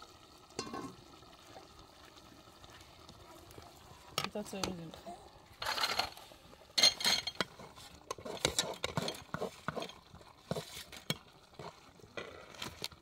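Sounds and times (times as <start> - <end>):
metal ladle stirring in a pot: 6.8 - 13.0.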